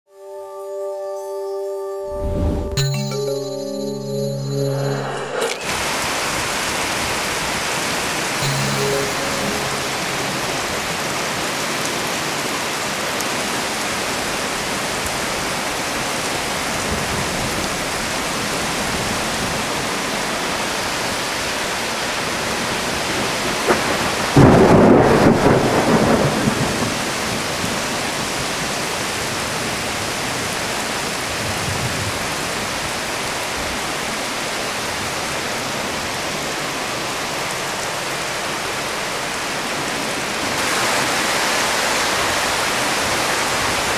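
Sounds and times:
thunderclap rumbling: 23.7s - 26.9s
heavy rain hissing: 40.6s - 43.9s.

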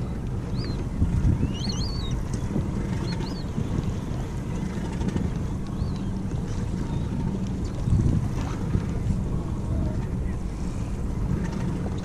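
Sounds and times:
wind on microphone: 0.0s - 12.0s
high bird calls: 1.4s - 2.3s.

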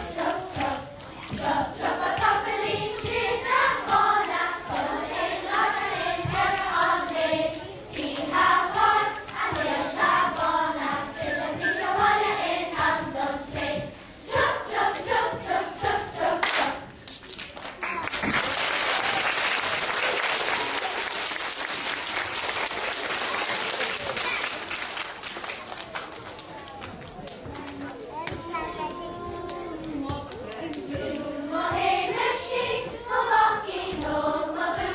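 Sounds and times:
children's choir singing: 0.0s - 17.0s, 28.4s - 34.9s
audience applause: 17.5s - 27.0s.

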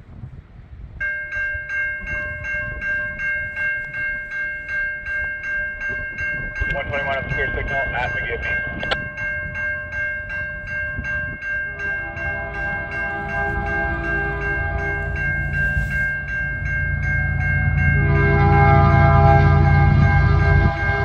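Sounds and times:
locomotive rumble: 0.0s - 21.0s
railway crossing bell ringing: 0.9s - 21.0s
train horn blasts: 11.7s - 16.2s, 17.2s - 21.0s.

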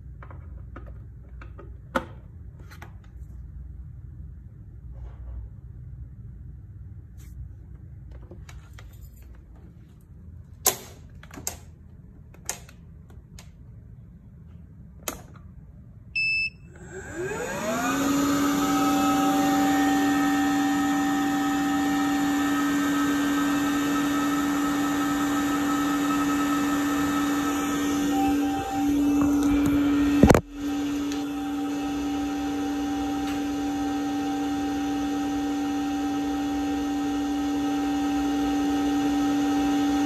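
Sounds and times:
suction fan whine and hum: 0.0s - 40.0s
short beep: 16.2s - 16.7s.

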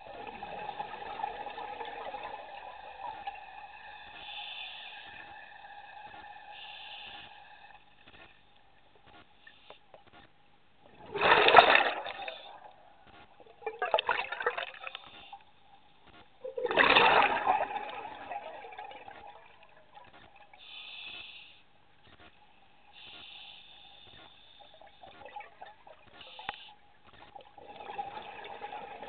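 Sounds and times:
gurgling exhaled bubbles underwater: 0.0s - 3.4s, 10.9s - 15.1s, 16.4s - 20.5s, 27.4s - 29.0s
regulator hiss: 3.7s - 7.7s, 20.6s - 21.7s, 22.9s - 24.8s.

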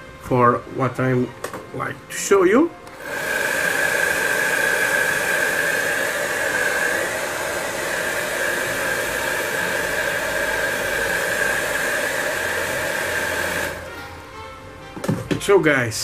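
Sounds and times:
high motor whine: 2.9s - 14.0s
air dryer blowing hiss: 2.9s - 14.1s.

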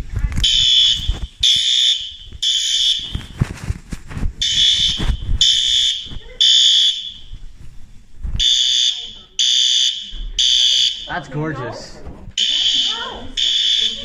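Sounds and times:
fire alarm horn beeping: 0.4s - 3.3s, 4.4s - 7.3s, 8.4s - 11.3s, 12.4s - 14.0s.

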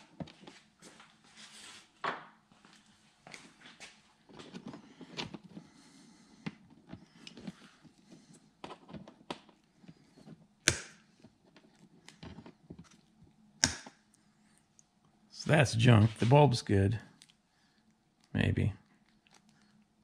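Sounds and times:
pliers snipping wires: 13.6s - 14.0s.

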